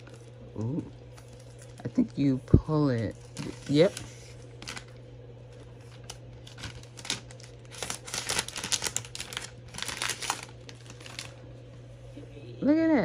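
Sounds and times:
plastic wrap peeling: 0:00.0 - 0:11.5.

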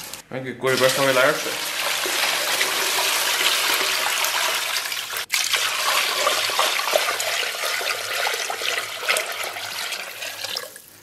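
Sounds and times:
water pouring and splashing: 0:00.7 - 0:11.0.

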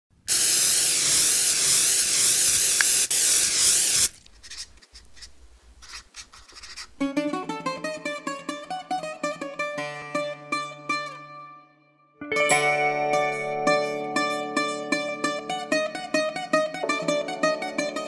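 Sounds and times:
spray paint can hissing: 0:00.3 - 0:04.7
plucked string music: 0:07.0 - 0:18.0.

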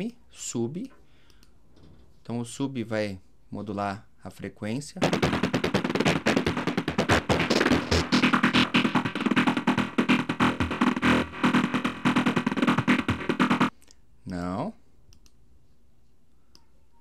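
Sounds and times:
fast staccato synth sequence: 0:05.0 - 0:13.7.

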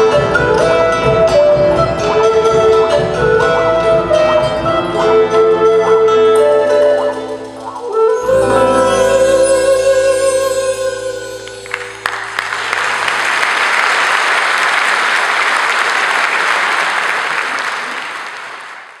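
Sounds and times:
audience applauding: 0:11.4 - 0:19.0.

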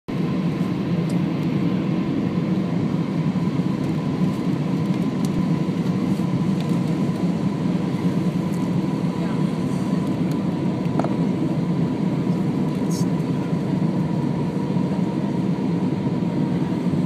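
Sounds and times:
airliner cabin engine rumble: 0:00.1 - 0:17.0.

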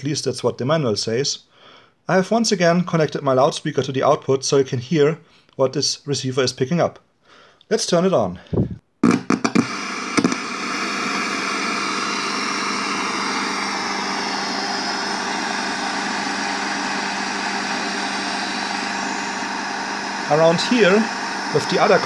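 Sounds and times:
radio receiver hiss: 0:08.5 - 0:10.6
radio crackling clicks: 0:09.0 - 0:10.5
low loudspeaker hum: 0:15.1 - 0:22.0.

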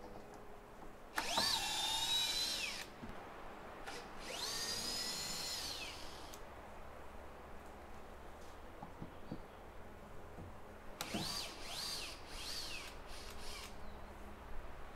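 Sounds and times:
power drill whining: 0:01.2 - 0:02.9, 0:03.9 - 0:06.4, 0:11.0 - 0:13.8.

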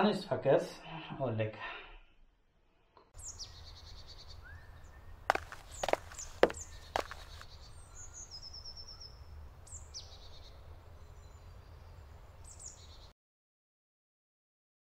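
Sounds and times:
small birds calling: 0:03.2 - 0:13.1.

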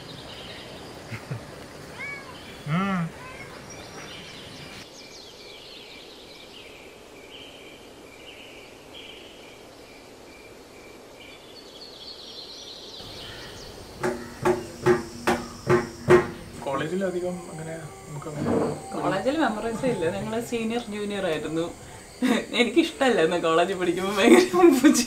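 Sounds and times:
birds chirping: 0:00.0 - 0:09.7, 0:11.3 - 0:25.0
insects trilling: 0:00.0 - 0:25.0
barrel drum strikes: 0:14.0 - 0:16.7.

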